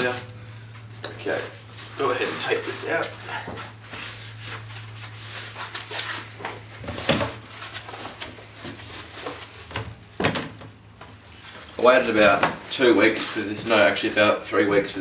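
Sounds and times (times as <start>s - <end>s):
foam rustling against cardboard: 3.8s - 6.7s.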